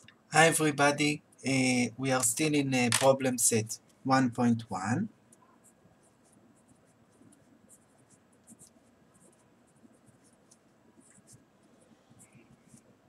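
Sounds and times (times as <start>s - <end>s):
pen scratching on paper: 5.4s - 12.9s.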